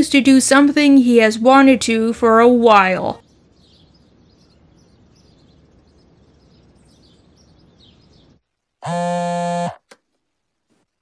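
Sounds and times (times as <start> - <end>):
birds chirping: 0.0 - 9.1
loud steady buzzing tone: 8.8 - 10.0.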